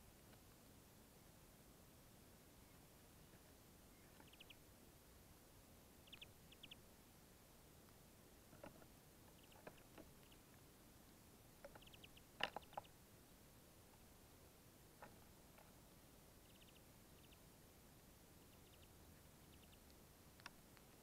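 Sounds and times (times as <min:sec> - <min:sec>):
beaks pecking and cracking seeds: 0:04.0 - 0:04.6, 0:06.0 - 0:06.8, 0:07.8 - 0:10.7, 0:11.6 - 0:13.0, 0:15.0 - 0:17.5, 0:18.3 - 0:21.0.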